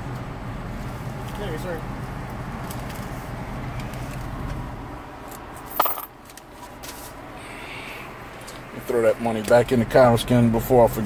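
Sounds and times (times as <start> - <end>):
coins jingling: 5.7 - 6.1.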